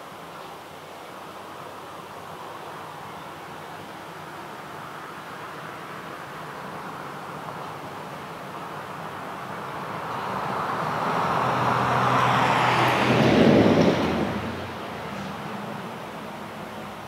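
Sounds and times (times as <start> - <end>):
vehicle passing by: 9.0 - 16.2.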